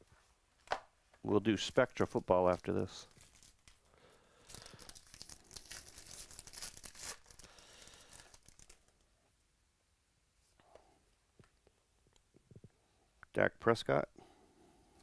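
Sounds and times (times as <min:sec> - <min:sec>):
foil wrapper tearing and crinkling: 0:02.5 - 0:09.0.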